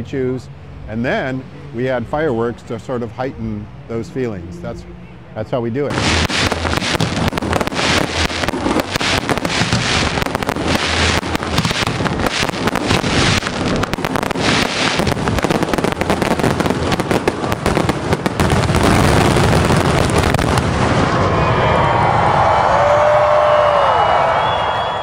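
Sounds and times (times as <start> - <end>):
low rumble: 4.9 - 22.7
fireworks bursting: 5.9 - 21.5.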